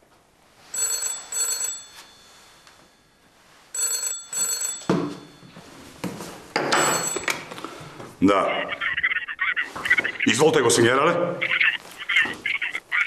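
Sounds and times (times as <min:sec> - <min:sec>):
telephone bell ringing: 0:00.6 - 0:07.9.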